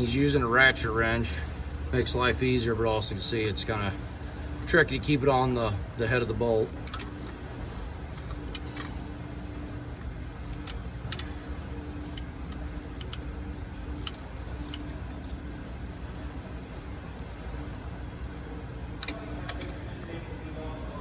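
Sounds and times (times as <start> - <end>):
steady low hum: 0.0 - 21.0
ratchet wrench clicking: 1.2 - 6.2, 6.8 - 7.4, 8.5 - 8.9, 10.0 - 11.4, 12.0 - 13.3, 13.9 - 16.3.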